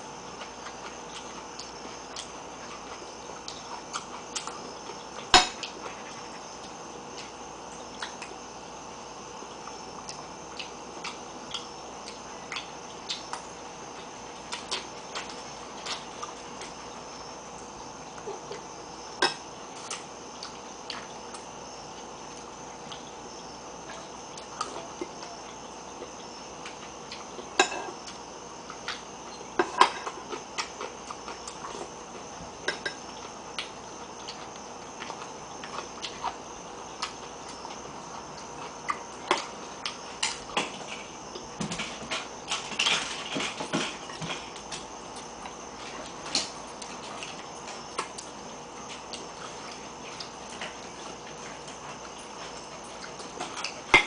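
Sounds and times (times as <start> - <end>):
faint background hum: 0.0 - 54.0.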